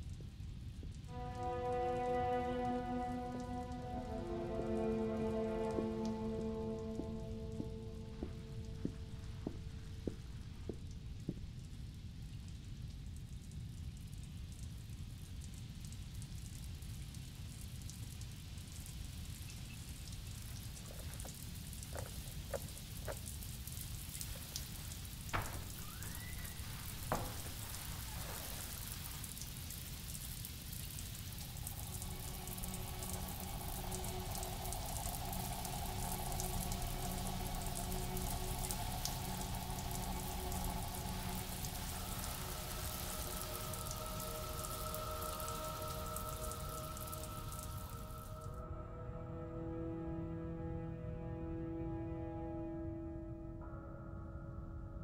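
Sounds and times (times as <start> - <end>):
falling water hiss: 0.0 - 11.6, 16.8 - 48.5
low eerie held music tones: 0.0 - 55.0.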